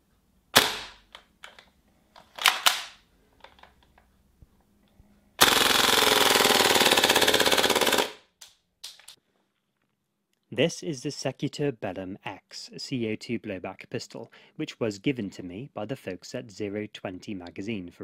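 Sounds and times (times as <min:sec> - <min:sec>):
full-auto gun burst: 0:05.4 - 0:08.2.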